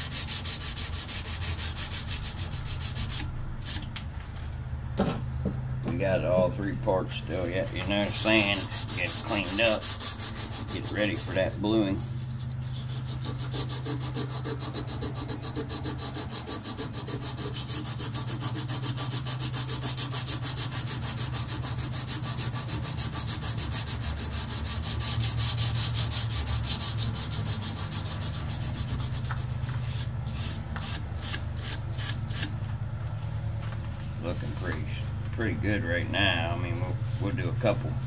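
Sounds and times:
sandpaper rubbing on steel blade: 0.0s - 3.8s, 7.2s - 32.5s.

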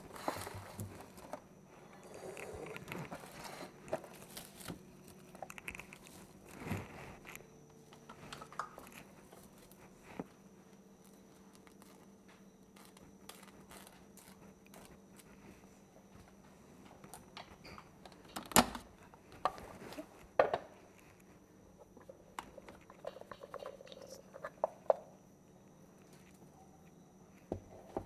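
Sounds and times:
cling wrap crinkling: 2.8s - 7.5s, 11.0s - 15.4s.

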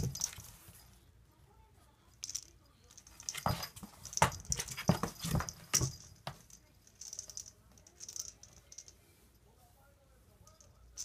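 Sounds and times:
kitten tussling in cardboard box: 3.2s - 6.4s.

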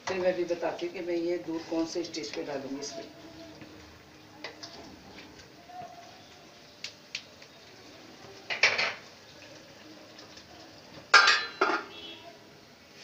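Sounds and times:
pan lid clanking: 11.1s - 11.9s.

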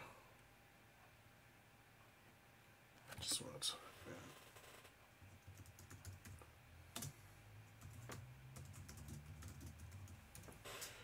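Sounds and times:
computer keyboard typing: 5.2s - 6.4s, 7.0s - 10.6s.

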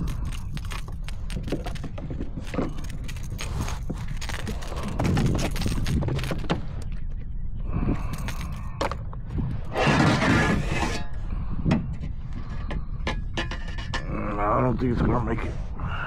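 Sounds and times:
fish being handled clicks and knocks: 0.0s - 7.0s.

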